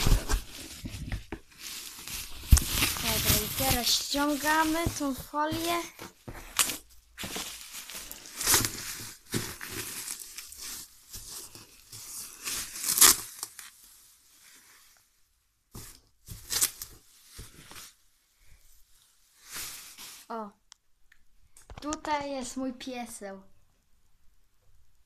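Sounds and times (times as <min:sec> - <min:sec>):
plastic film crinkling and tearing: 0:00.0 - 0:05.9, 0:06.5 - 0:13.8.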